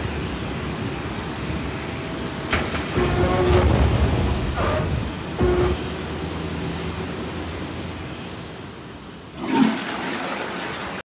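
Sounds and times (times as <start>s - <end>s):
heavy doors rolling rumble: 2.3s - 8.3s.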